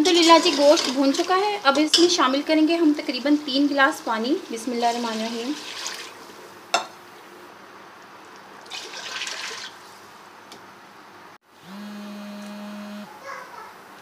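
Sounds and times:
water splashing into a pot: 0:04.5 - 0:06.4, 0:08.3 - 0:09.8.

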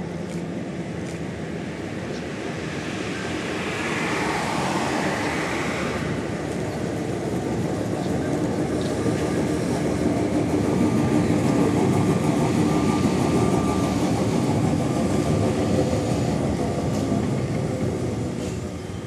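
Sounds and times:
tram wheels on rails: 0:00.0 - 0:19.0.

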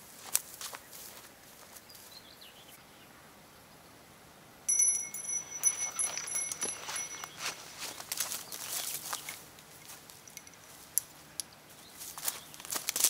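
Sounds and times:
small bell jingling: 0:04.7 - 0:08.0, 0:09.7 - 0:11.1
handling clicks and rustles: 0:04.7 - 0:13.0.

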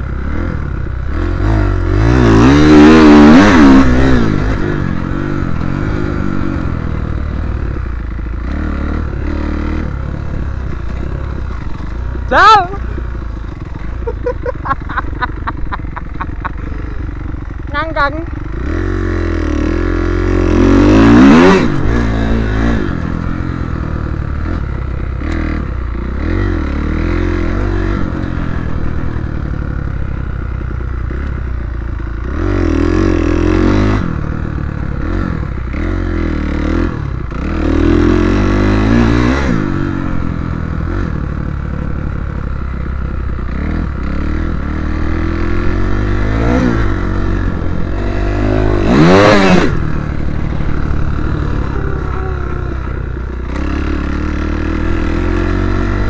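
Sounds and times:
motocross bike engine revving: 0:00.0 - 0:56.0
chassis clattering over dirt: 0:09.7 - 0:17.5, 0:44.9 - 0:56.0.

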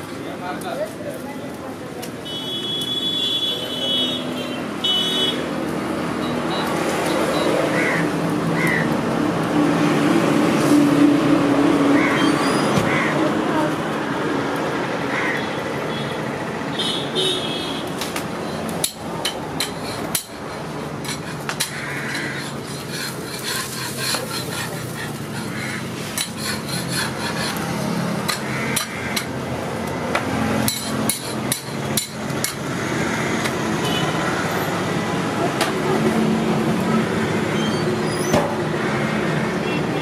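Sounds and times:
metal spatula scraping griddle: 0:18.5 - 0:29.4, 0:30.6 - 0:32.6.

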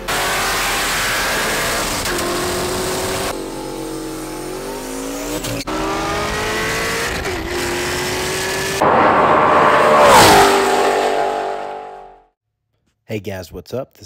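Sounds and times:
car engine revving hard: 0:00.0 - 0:12.2.

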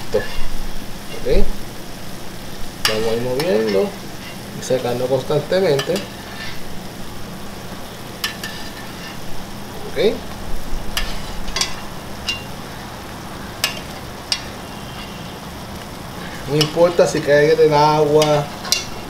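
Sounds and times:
sauce sizzling in skillet: 0:00.0 - 0:19.0
metal spoon clicking on pan: 0:11.0 - 0:12.5, 0:13.6 - 0:15.1, 0:18.2 - 0:19.0.

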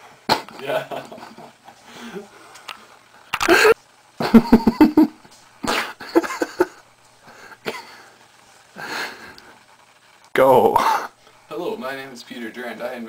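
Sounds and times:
man stifled laughter: 0:03.4 - 0:06.8.

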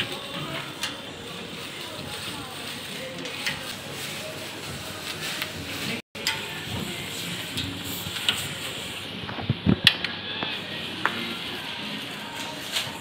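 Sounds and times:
shop background noise: 0:00.0 - 0:13.0
clothes hangers clicking on rack: 0:06.2 - 0:06.5.

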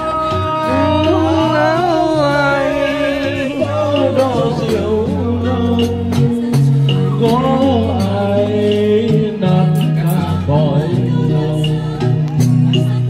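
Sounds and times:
karaoke backing music: 0:00.0 - 0:13.0.

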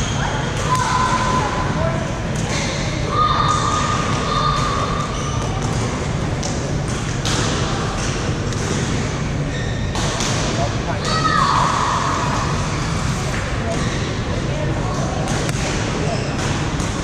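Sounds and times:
murmur and rumble of busy hall: 0:00.0 - 0:17.0
sharp shuttlecock hits and thuds: 0:04.1 - 0:09.2, 0:09.9 - 0:11.2, 0:15.1 - 0:17.0.

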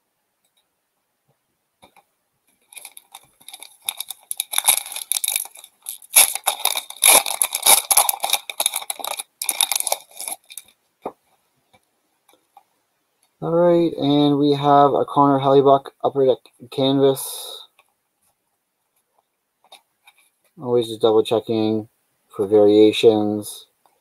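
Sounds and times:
foil wrapper tearing and crinkling: 0:02.7 - 0:10.7.

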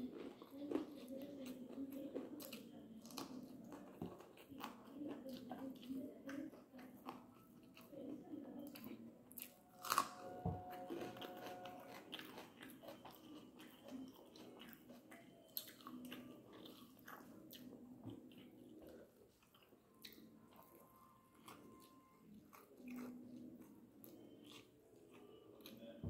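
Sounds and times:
person chewing and smacking: 0:00.0 - 0:26.0.

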